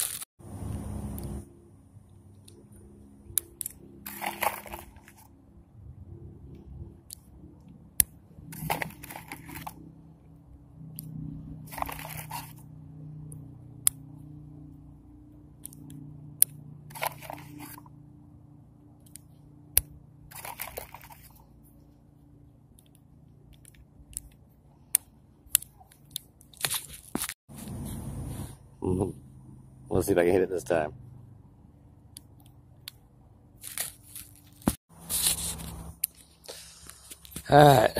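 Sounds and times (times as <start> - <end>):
handling rustle: 0.0 - 0.3, 3.7 - 5.4, 8.4 - 9.8, 11.7 - 12.6, 16.9 - 17.9, 20.3 - 22.0, 25.8 - 28.4, 33.6 - 37.5.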